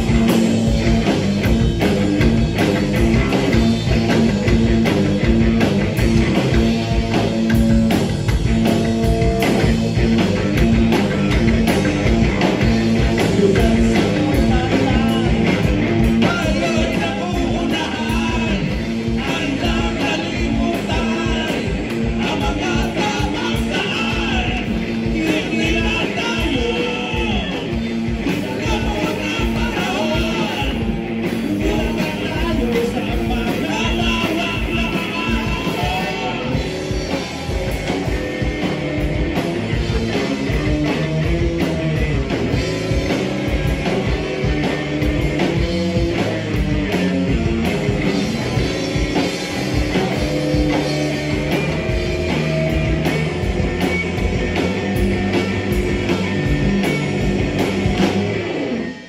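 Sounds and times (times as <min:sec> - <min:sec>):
drum kit beat: 0:00.0 - 0:58.8
electric bass: 0:00.0 - 0:59.0
electric guitar: 0:00.0 - 0:59.0
person singing: 0:13.2 - 0:36.7.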